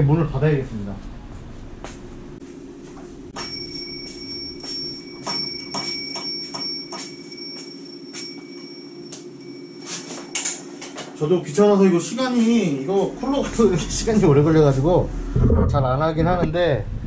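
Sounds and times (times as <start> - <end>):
computer fan drone: 0.0 - 17.0
thin high whine: 2.4 - 15.5.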